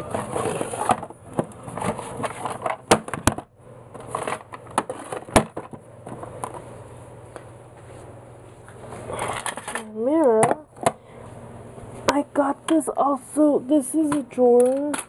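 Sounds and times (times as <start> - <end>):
plastic trays shuffling and rubbing: 0.0 - 3.2, 4.0 - 6.7.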